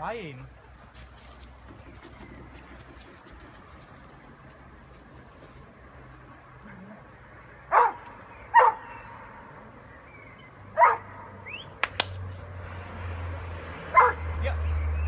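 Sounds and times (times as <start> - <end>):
dog barking: 7.7 - 8.9, 10.8 - 11.2, 13.9 - 14.2.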